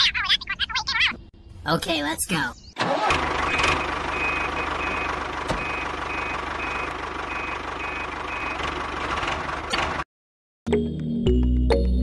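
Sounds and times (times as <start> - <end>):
steady engine sound: 2.8 - 10.0
reversing alarm beeping: 3.5 - 8.6.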